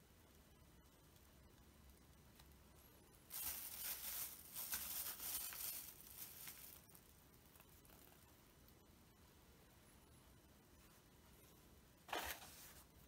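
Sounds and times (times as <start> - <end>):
crinkling rustling: 3.3 - 8.3.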